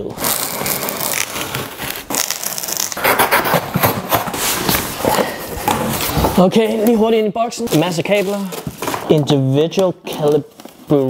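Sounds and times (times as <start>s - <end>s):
cardboard scraping and crackling: 0.2s - 7.0s
knife slicing tape and cardboard: 2.3s - 4.8s.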